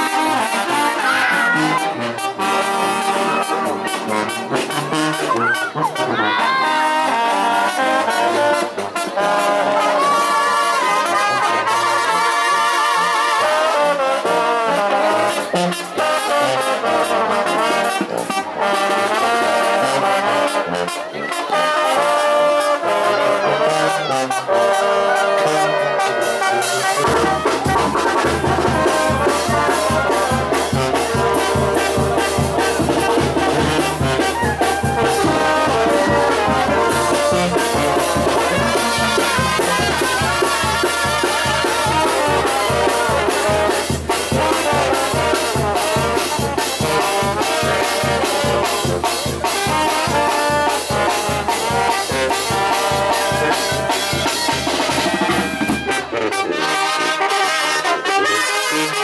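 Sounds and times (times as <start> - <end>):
brass band playing: 0.0 - 59.0
percussion beat: 25.6 - 56.1
bass line: 26.8 - 41.9.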